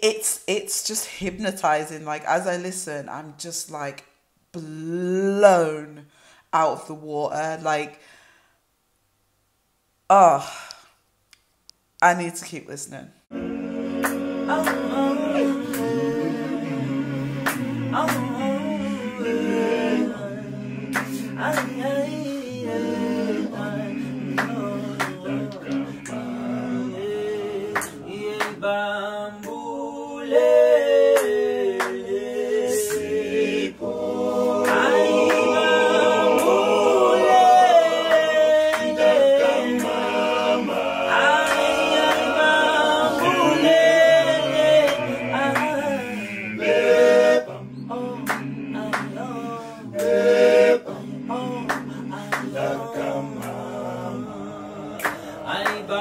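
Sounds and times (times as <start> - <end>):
male a cappella group singing: 13.3 - 56.0.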